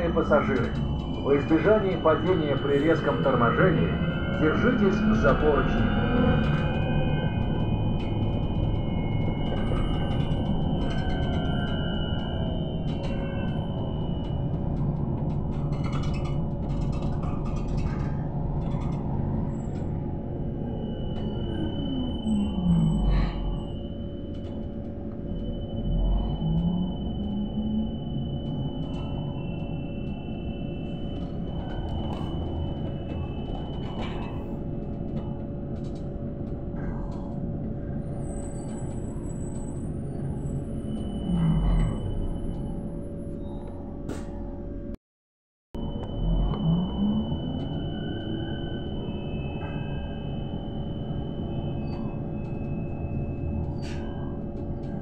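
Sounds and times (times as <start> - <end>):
low rumble of running gear: 0.0 - 39.8
steady whine: 0.0 - 45.0, 45.8 - 55.0.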